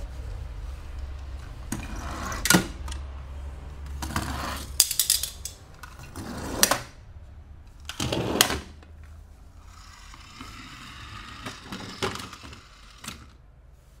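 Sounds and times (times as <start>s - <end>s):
toy cars clicking: 3.8s - 6.9s, 9.7s - 13.4s.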